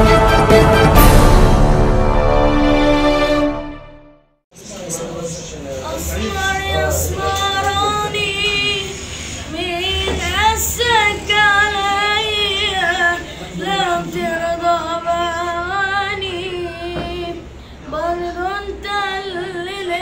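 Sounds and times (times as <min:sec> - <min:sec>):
singer breathing: 0:08.8 - 0:09.6, 0:13.2 - 0:13.6, 0:17.4 - 0:17.9.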